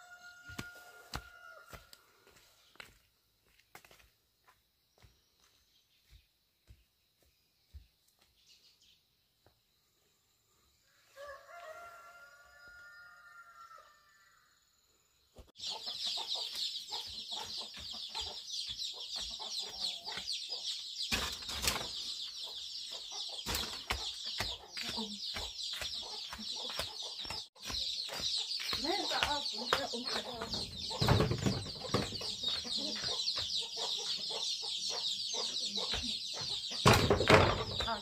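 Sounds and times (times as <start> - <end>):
rooster crowing: 0.0 - 2.0, 11.1 - 14.4
chickens clucking: 15.6 - 38.0
scattered knocks: 35.9 - 38.0.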